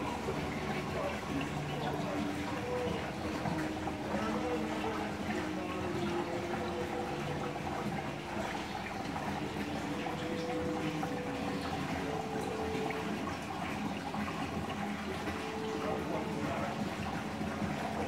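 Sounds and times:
water flowing and splashing: 0.0s - 18.0s.

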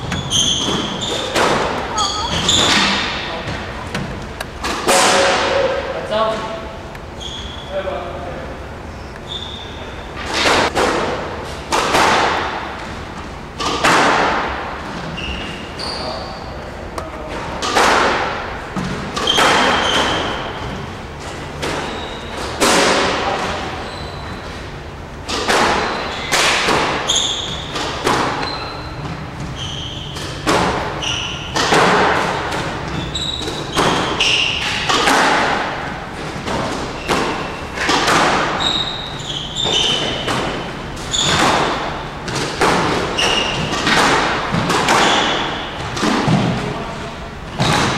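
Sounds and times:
court shoes squeaking: 0.0s - 4.9s, 7.0s - 7.8s, 8.9s - 10.8s, 14.8s - 16.8s, 18.8s - 22.6s, 23.2s - 46.5s, 47.4s - 47.9s
squash ball hits: 4.6s - 5.8s, 10.3s - 12.7s, 13.6s - 14.7s, 21.6s - 23.6s, 25.3s - 38.9s, 39.6s - 46.7s, 47.5s - 47.9s.

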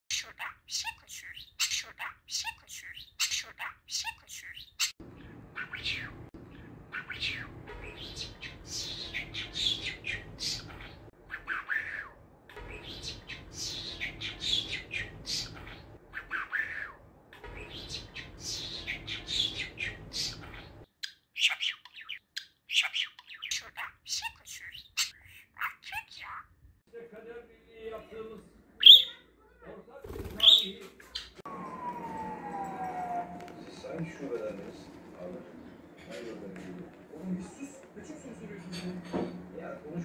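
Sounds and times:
budgerigar chattering: 0.1s - 16.9s
low background noise: 31.5s - 40.0s.

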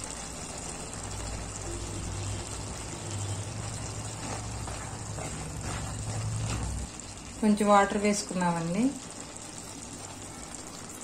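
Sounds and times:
curry sizzling in a pan: 0.0s - 11.0s.

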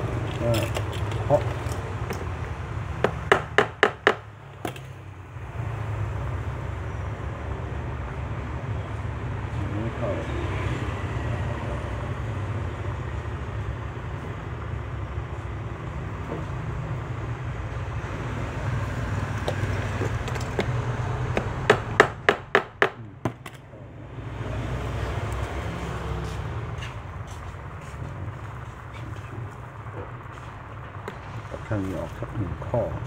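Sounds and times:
sharp metallic taps: 3.0s - 4.9s, 19.4s - 23.6s.

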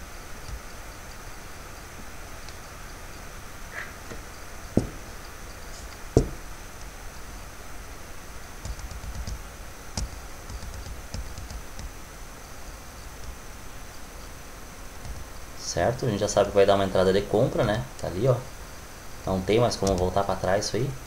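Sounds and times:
sharp knocks on desk: 4.8s - 5.0s, 6.2s - 6.4s
light clicks and taps: 8.6s - 12.0s, 19.8s - 20.2s.

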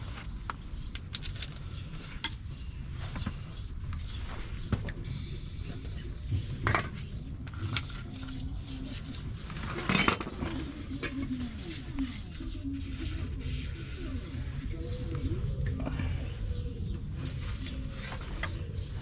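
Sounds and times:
hand tools clinking on metal: 1.0s - 2.5s, 7.5s - 8.4s, 9.8s - 10.5s
low background rumble: 10.5s - 19.0s.

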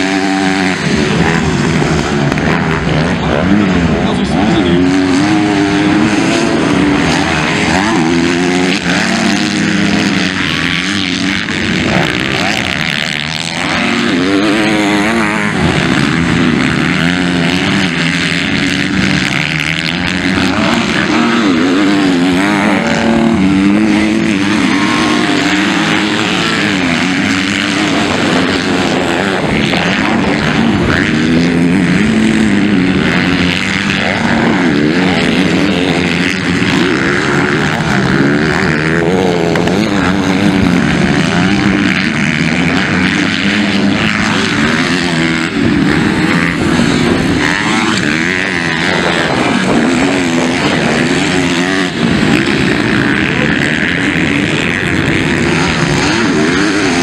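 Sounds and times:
motocross bike engines revving: 0.0s - 57.0s.

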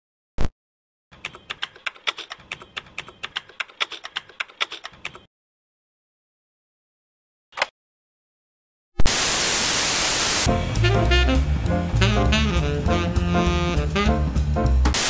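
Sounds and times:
keyboard key clicks: 1.2s - 5.3s.

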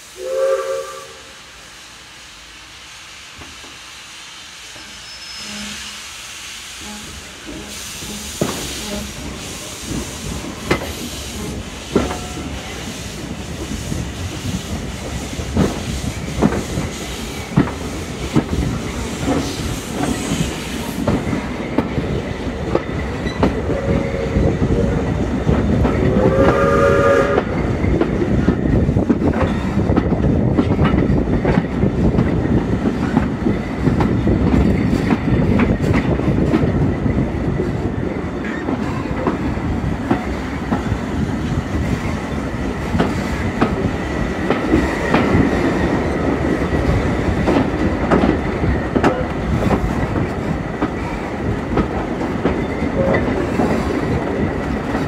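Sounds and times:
steam whistle: 0.0s - 1.6s, 4.8s - 6.0s, 26.0s - 27.7s
train wheels clacking over rail joints: 7.0s - 55.0s.

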